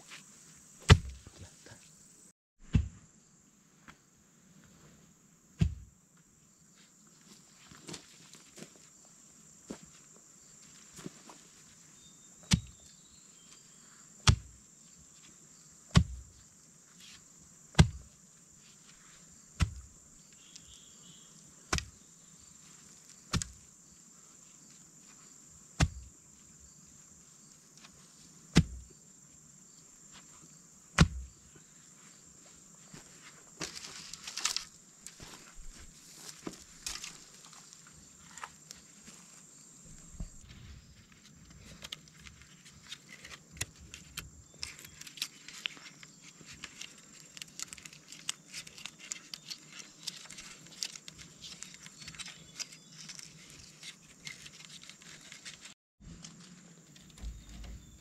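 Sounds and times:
pole thudding into soil: 0:00.8 - 0:01.3, 0:02.6 - 0:03.0, 0:05.6 - 0:05.9, 0:15.9 - 0:16.2, 0:17.8 - 0:18.1, 0:19.6 - 0:19.9, 0:23.3 - 0:23.6, 0:25.8 - 0:26.1, 0:28.5 - 0:28.8, 0:31.0 - 0:31.3, 0:57.2 - 0:58.0
high insect buzz: 0:05.1 - 0:58.0
rustle of leaves: 0:33.1 - 0:39.7, 0:40.4 - 0:57.7.

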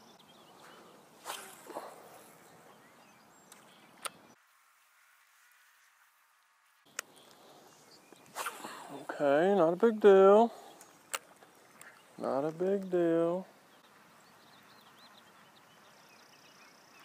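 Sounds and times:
rustles: 0:00.0 - 0:09.2.

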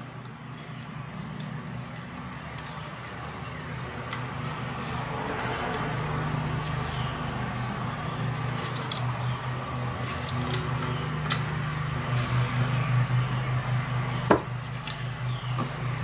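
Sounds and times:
faint clicks of parts handled: 0:04.0 - 0:04.4, 0:08.4 - 0:09.2, 0:10.0 - 0:11.6.

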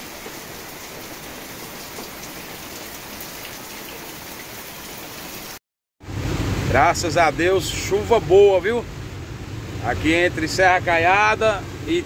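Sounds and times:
steady rain falling: 0:00.0 - 0:05.6.

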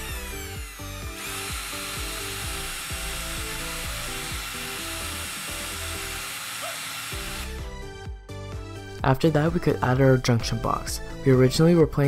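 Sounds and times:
cordless drill whining: 0:00.0 - 0:07.7.

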